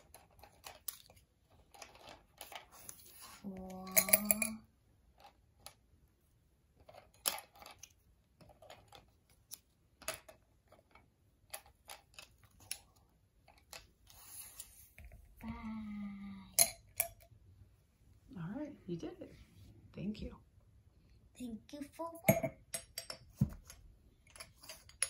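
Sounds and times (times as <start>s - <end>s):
wooden sticks clicking against jars: 3.6s - 5.3s.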